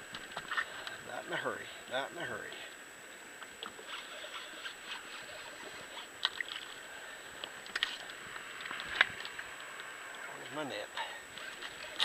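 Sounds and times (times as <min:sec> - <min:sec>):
water lapping against boat hull: 0:03.4 - 0:09.4
clicks and knocks of fishing rod: 0:07.4 - 0:09.9.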